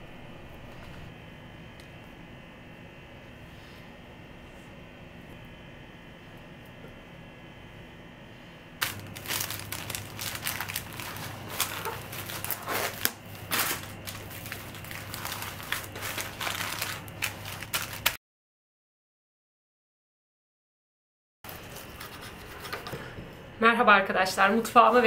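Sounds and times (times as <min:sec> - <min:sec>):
cling film and paper crinkling: 0:08.8 - 0:18.2.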